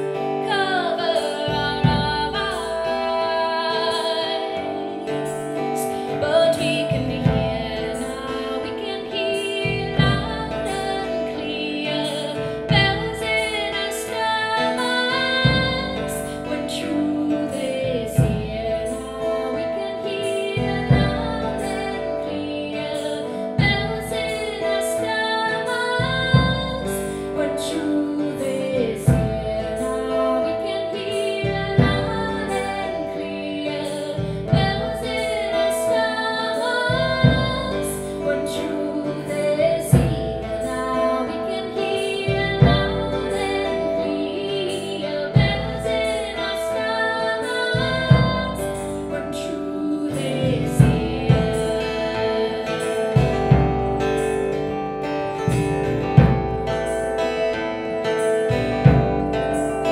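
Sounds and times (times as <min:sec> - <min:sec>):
acoustic guitars: 0:00.0 - 0:59.9
woman singing: 0:00.0 - 0:59.9
deep drum struck with mallet: 0:55.4 - 0:56.9, 0:58.6 - 0:59.6.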